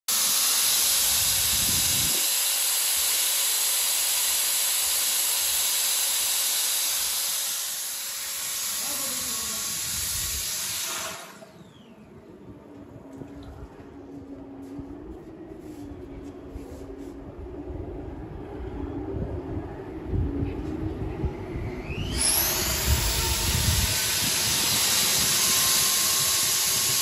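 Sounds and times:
electric drill motor: 0.1s - 12.1s, 21.8s - 27.0s.

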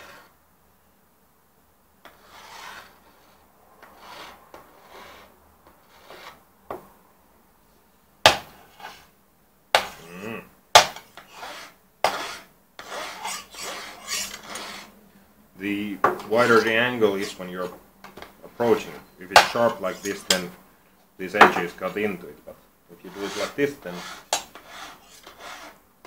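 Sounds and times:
file rasping on metal edge: 0.0s - 0.3s, 2.0s - 6.4s, 8.7s - 9.1s, 10.8s - 15.0s, 19.4s - 20.5s, 23.0s - 25.8s.

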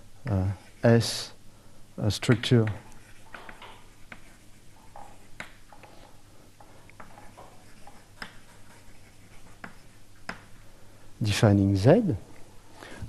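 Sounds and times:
low room hum: 0.0s - 13.0s
writing taps on a board: 2.2s - 4.3s, 4.9s - 5.6s, 7.0s - 8.5s, 9.6s - 10.5s.

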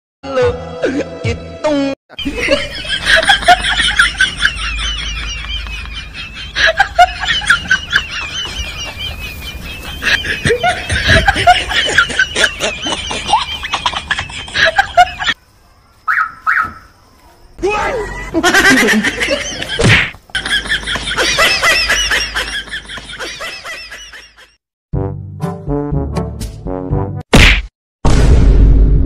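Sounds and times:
high-pitched laughing: 2.1s - 15.4s, 17.6s - 24.5s.

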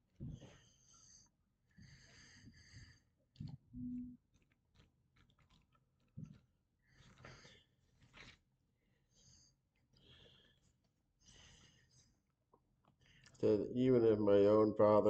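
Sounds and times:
man breathing wheezily: 1.8s - 3.1s.

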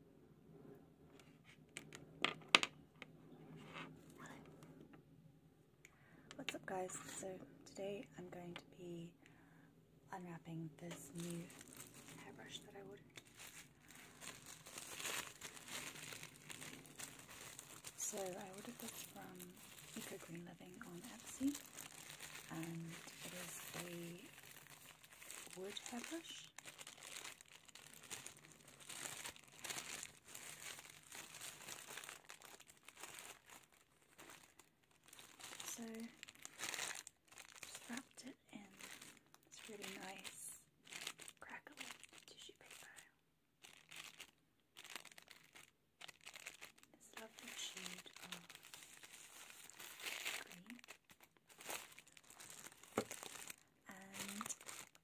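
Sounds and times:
tissue paper crinkling: 10.8s - 43.0s, 43.6s - 55.0s.

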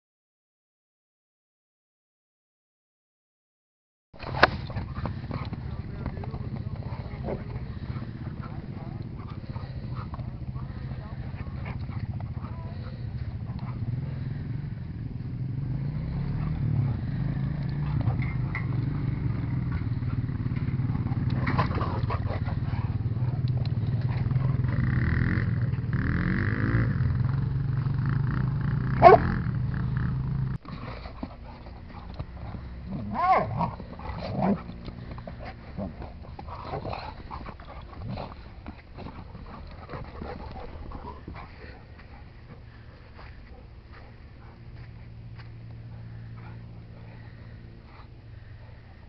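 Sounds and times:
atv engine idling: 4.2s - 49.0s
dogs growling: 4.2s - 49.0s
dog yipping: 29.0s - 29.2s
dog barking: 29.0s - 29.3s, 33.1s - 33.7s.

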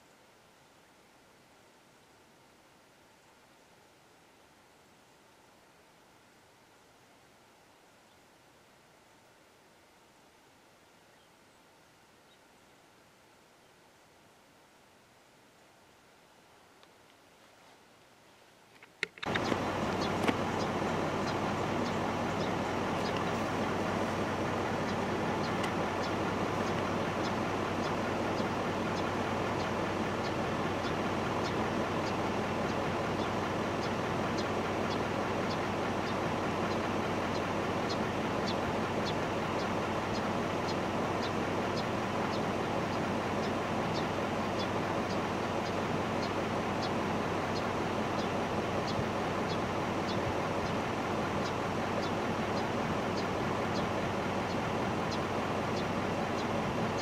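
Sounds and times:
steady outdoor rushing noise: 19.2s - 57.0s.

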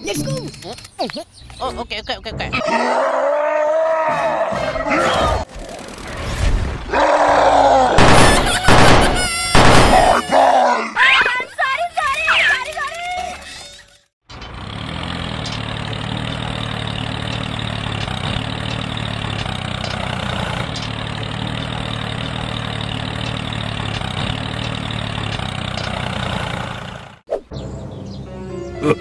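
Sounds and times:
tractor engine idling: 14.2s - 27.2s.

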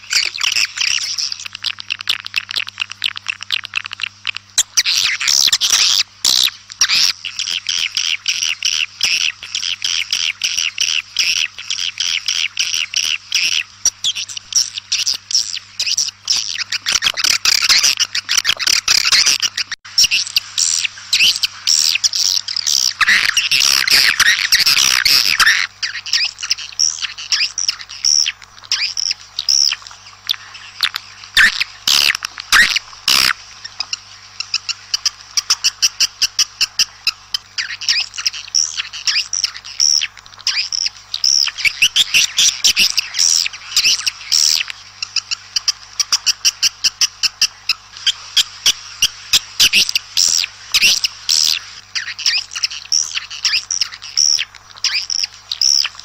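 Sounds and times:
swiftlets twittering and chirping: 0.0s - 56.0s.

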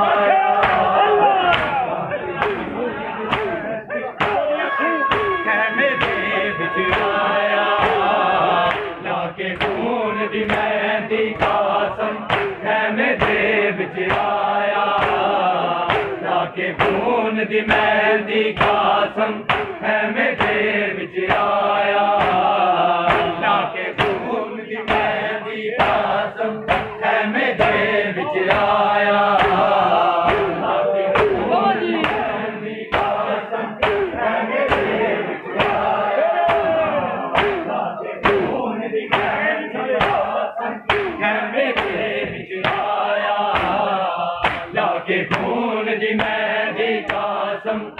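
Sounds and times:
men chanting a lament: 0.0s - 47.9s
hands slapping chests: 0.5s - 4.4s, 7.8s - 10.8s, 11.4s - 13.5s, 14.1s - 17.1s, 18.6s - 19.8s, 20.4s - 20.6s, 22.2s - 22.5s, 23.1s - 24.3s, 25.8s - 27.9s, 28.5s - 35.0s, 35.6s - 35.9s, 36.5s - 39.4s, 40.0s - 42.0s, 42.6s - 45.6s, 46.2s - 46.4s, 47.0s - 47.3s.

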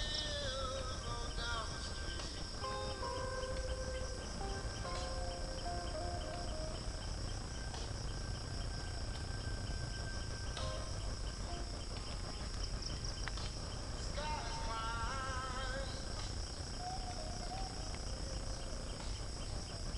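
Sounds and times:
high-pitched insect chorus: 0.0s - 19.9s
wavering call: 2.6s - 7.7s, 14.2s - 18.7s.

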